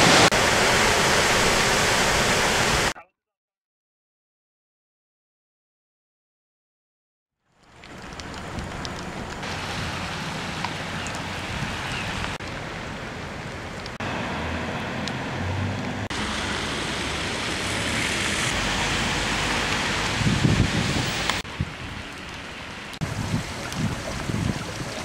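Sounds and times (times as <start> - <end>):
steady rain: 0.0 - 3.0, 7.5 - 25.0
wind noise: 19.8 - 22.3, 23.0 - 25.0.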